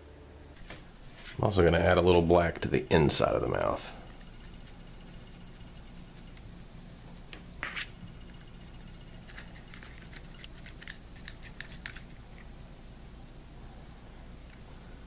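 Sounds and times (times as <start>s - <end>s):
low steady hum: 0.0s - 15.0s
paintbrush scratching on plastic: 4.1s - 12.0s.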